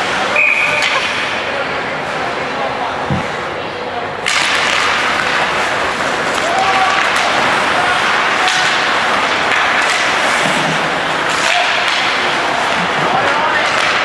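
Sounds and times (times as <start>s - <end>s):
stick and puck clacks: 0.0s - 1.4s, 4.2s - 14.0s
skates on ice: 4.2s - 14.0s.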